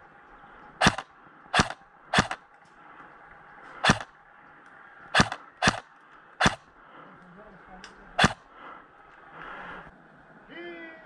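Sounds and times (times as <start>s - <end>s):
airsoft rifle shots: 0.8s - 2.4s, 3.8s - 4.1s, 5.2s - 6.6s, 8.2s - 8.5s.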